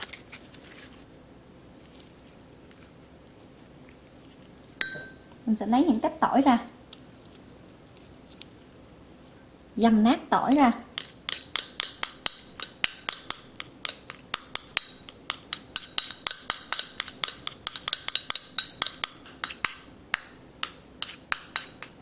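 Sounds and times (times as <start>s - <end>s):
metal spoon clinking on bowl: 4.8s - 5.4s, 10.5s - 21.9s.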